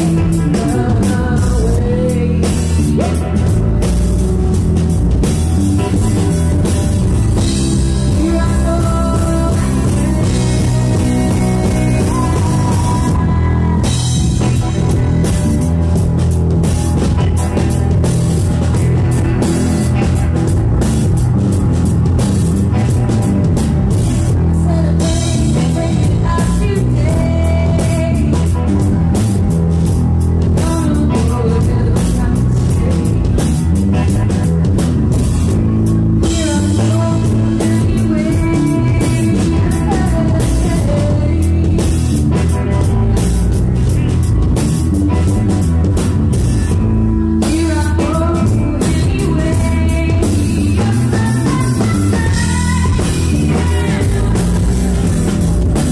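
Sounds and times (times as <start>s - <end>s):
woman singing: 0.0s - 3.5s, 7.3s - 15.4s, 24.3s - 29.2s, 30.5s - 34.3s, 36.2s - 44.1s, 47.4s - 55.2s
drum kit: 0.0s - 55.9s
electric guitar: 0.0s - 55.9s.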